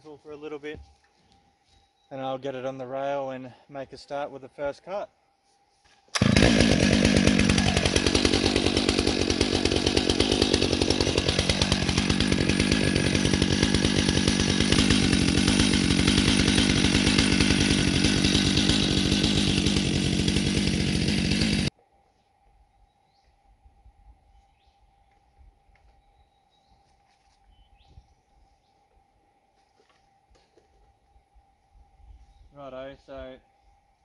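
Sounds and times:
chainsaw engine running: 6.1s - 21.7s.

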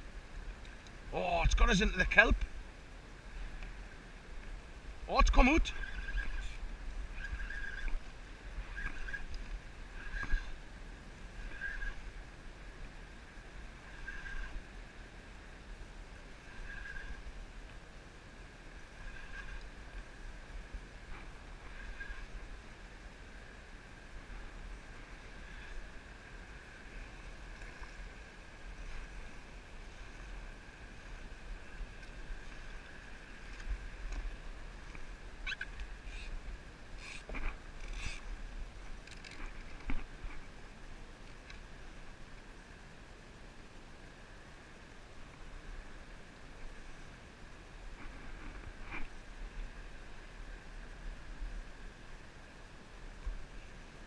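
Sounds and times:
water and wind rushing: 0.0s - 54.0s
fishing reel buzzing: 5.4s - 10.6s, 11.3s - 12.1s, 13.8s - 14.6s, 16.5s - 17.2s, 19.0s - 19.8s, 21.7s - 22.4s, 37.0s - 38.3s.

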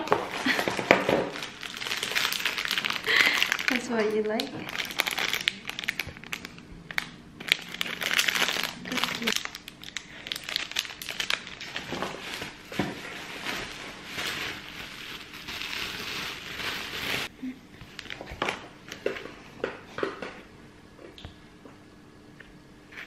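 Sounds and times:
packaging rustling and crinkling: 0.0s - 17.3s.

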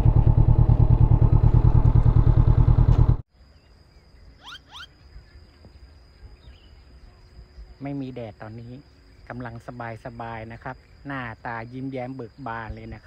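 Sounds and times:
motorcycle engine pulsing: 0.0s - 3.2s
quick rising chirps: 4.4s - 5.0s.

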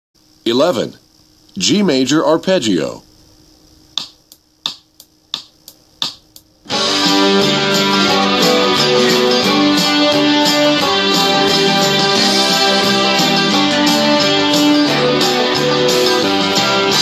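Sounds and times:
instrumental accompaniment: 5.4s - 17.0s.

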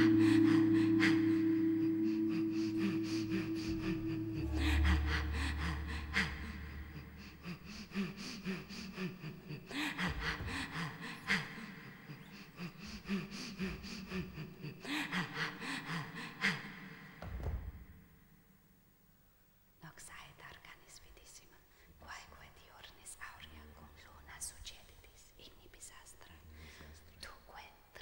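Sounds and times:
low drone: 0.0s - 11.7s
gasping and panting breaths: 1.8s - 16.6s.

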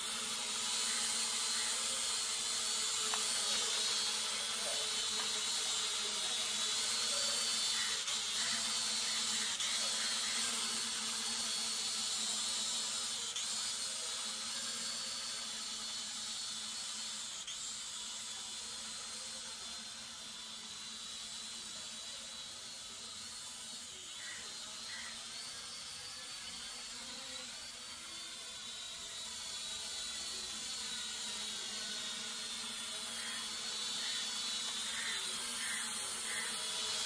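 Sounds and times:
drone propellers whining: 0.0s - 11.1s, 23.2s - 26.5s, 27.5s - 37.0s.

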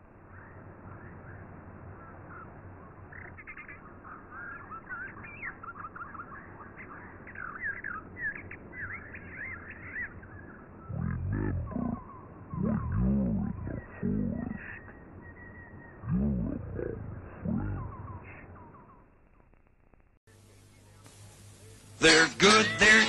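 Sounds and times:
birds chirping and twittering: 0.0s - 19.6s
deep animal roar: 10.9s - 14.8s, 16.0s - 18.4s.

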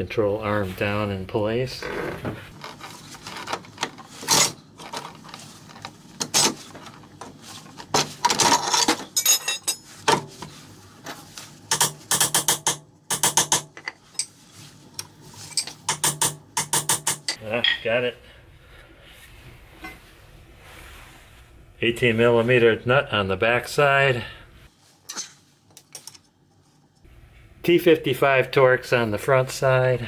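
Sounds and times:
metal clanks and rattles: 7.8s - 10.3s.

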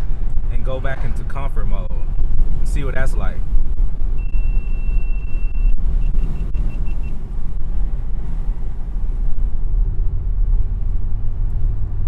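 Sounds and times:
car engine and road rumble: 0.0s - 12.0s
short high electronic beeps: 4.2s - 7.2s.

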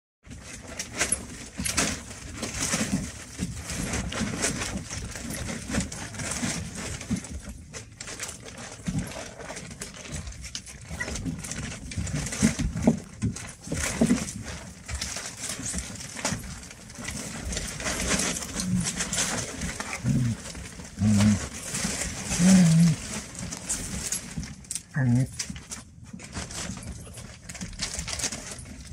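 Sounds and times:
tent fabric rustling: 14.6s - 24.6s.

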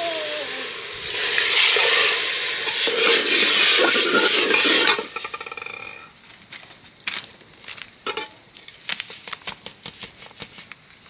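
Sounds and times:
food sizzling in a pan: 0.0s - 6.1s.

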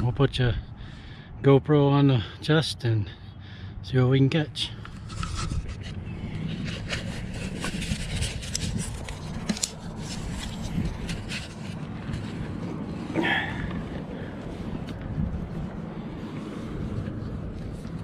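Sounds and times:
wind buffeting microphone: 4.8s - 18.0s
clothing and gear rustles: 4.9s - 18.0s.

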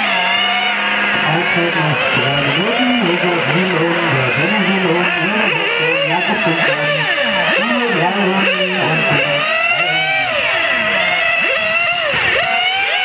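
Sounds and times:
rc cars racing motors: 0.0s - 13.0s.

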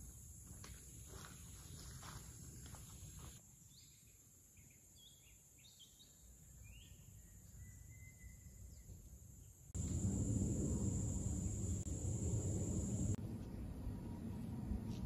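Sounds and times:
bird chirps: 3.7s - 9.0s
high insect drone: 9.8s - 13.2s.

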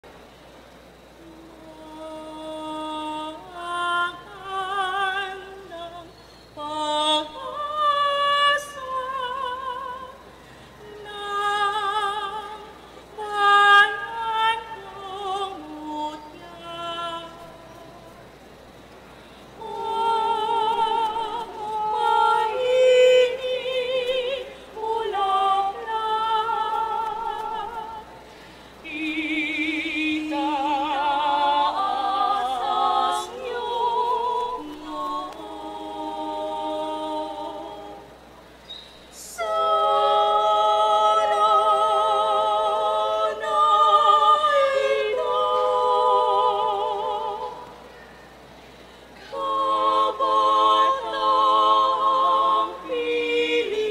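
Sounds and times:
choir singing a cappella: 1.0s - 53.9s
singers breathing: 10.2s - 10.8s, 19.0s - 19.6s, 28.2s - 28.8s, 47.7s - 49.4s.

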